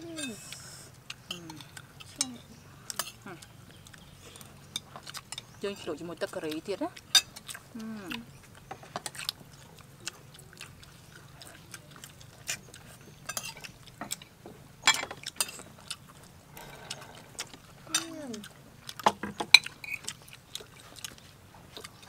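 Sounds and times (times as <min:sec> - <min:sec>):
crunchy chewing: 0:00.0 - 0:22.0
spoons clicking on plates: 0:01.2 - 0:07.6, 0:13.2 - 0:20.7.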